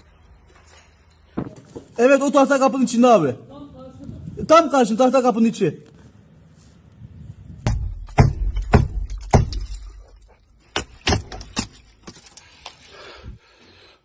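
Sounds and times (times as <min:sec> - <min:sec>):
rubble clattering underfoot: 0:00.0 - 0:02.2, 0:08.5 - 0:13.0.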